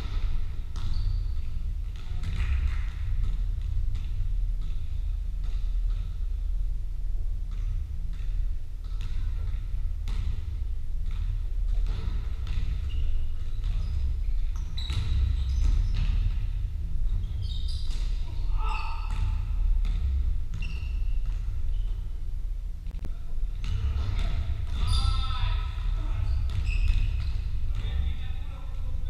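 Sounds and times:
basketball bouncing on wooden floor: 0.0 - 6.4, 7.5 - 22.1, 23.6 - 28.2
steady low rumble: 0.0 - 29.0
shoes squeaking: 12.6 - 16.3, 17.1 - 19.4, 23.8 - 28.0.

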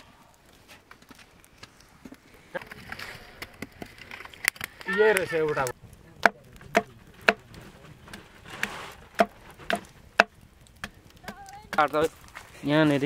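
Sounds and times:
blade chopping on wood: 6.2 - 7.4, 8.6 - 11.9
rustle: 6.9 - 10.2.

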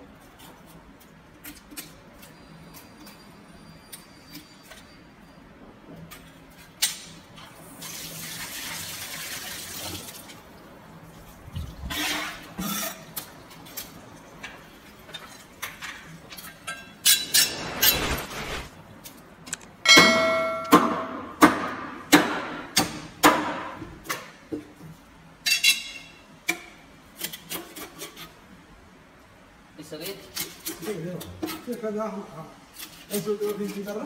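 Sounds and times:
steel blade ringing: 19.9 - 21.2.

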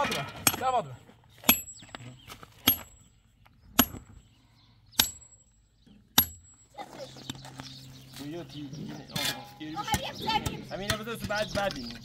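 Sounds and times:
metal bar striking stone: 0.0 - 0.8, 1.4 - 2.0, 2.6 - 3.1, 3.8 - 4.2, 5.0 - 5.5, 6.1 - 6.7.

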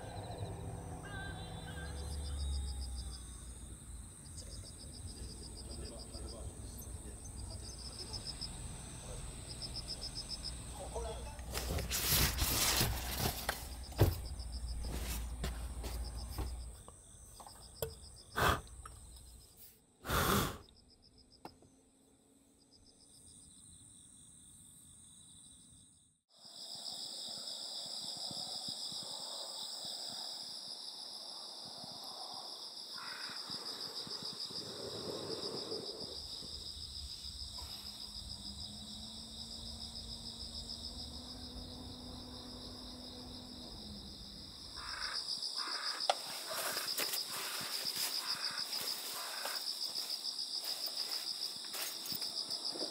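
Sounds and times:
crickets chirping: 0.0 - 52.9
foam sleeping mat rustling: 11.5 - 16.5, 46.2 - 52.2
thump: 13.9 - 14.4.

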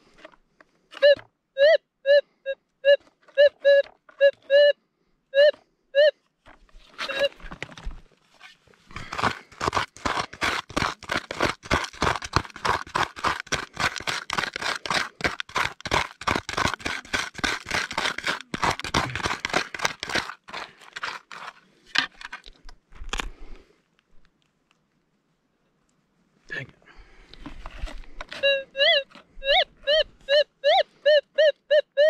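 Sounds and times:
hand scoop scraping gravelly soil: 6.7 - 22.5, 27.5 - 30.3.

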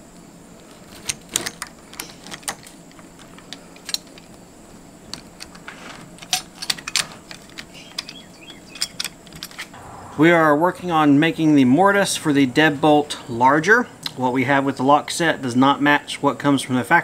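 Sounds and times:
metal lock clicks and rattles: 0.9 - 4.3, 5.1 - 9.8.

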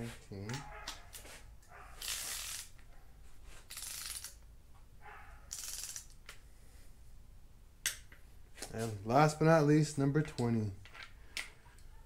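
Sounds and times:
torque wrench ratchet clicking: 3.7 - 4.4, 5.5 - 6.1.

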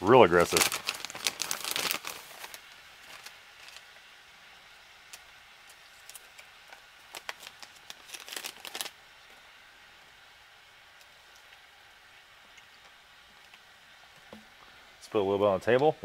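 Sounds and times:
plastic packaging crinkling: 0.0 - 3.9, 5.1 - 9.0.

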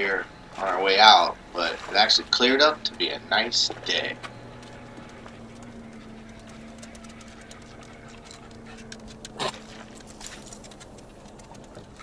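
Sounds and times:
faint steady hum: 0.0 - 12.0
light ticks: 2.7 - 12.0.

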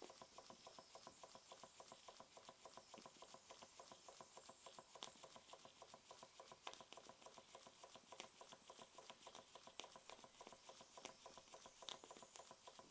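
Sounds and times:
sharp engine tick: 0.0 - 12.9.

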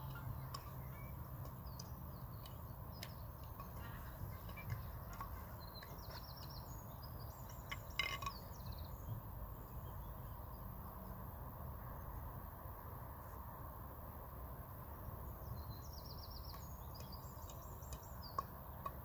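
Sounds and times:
bird chirping: 0.0 - 10.7, 15.2 - 19.0.

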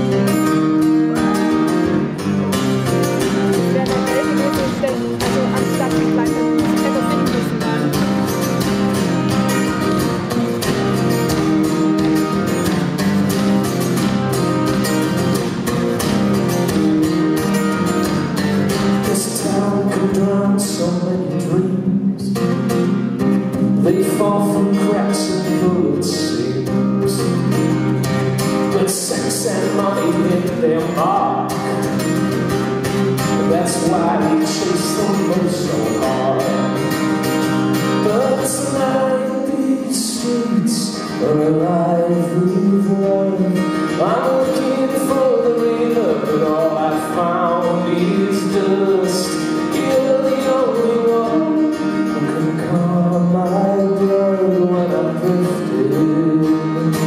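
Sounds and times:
man singing: 0.0 - 10.1, 18.8 - 22.8, 23.4 - 27.6, 28.6 - 32.0, 33.2 - 37.0, 37.8 - 57.0
acoustic guitar: 0.0 - 57.0.

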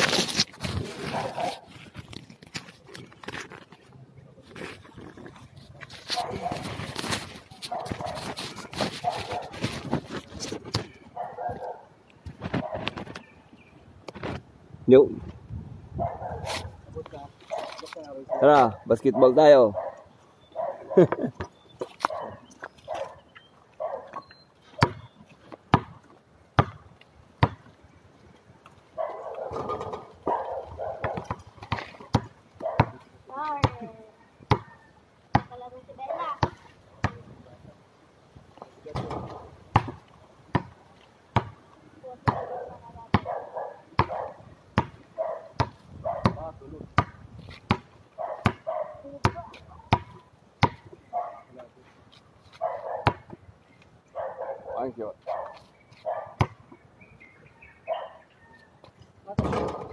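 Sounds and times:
basketball bouncing on concrete: 24.8 - 27.7, 29.3 - 33.0, 33.6 - 33.8, 34.5 - 35.6, 36.3 - 37.2, 38.9 - 41.6, 42.2 - 51.0, 53.0 - 53.4, 56.4 - 56.7, 59.3 - 59.9.

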